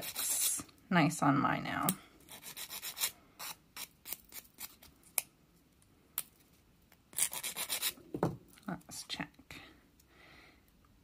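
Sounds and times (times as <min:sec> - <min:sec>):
nail file rasping: 0:00.0 - 0:00.5, 0:02.3 - 0:04.8, 0:07.2 - 0:08.0.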